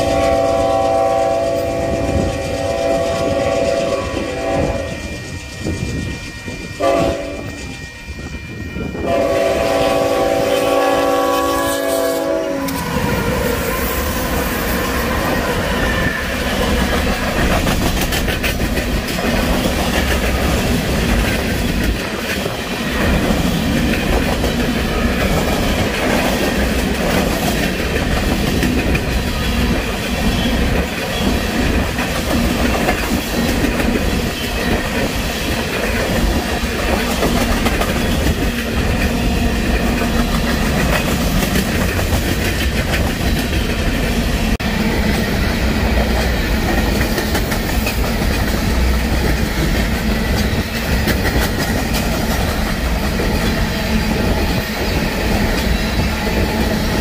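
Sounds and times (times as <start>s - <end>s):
train wheels rumbling on rail: 0.0s - 57.0s
wheels clacking over rail joints: 15.1s - 44.2s.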